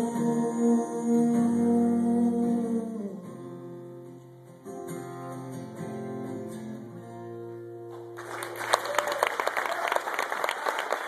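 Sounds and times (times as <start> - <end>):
acoustic guitar playing: 0.0 - 8.6.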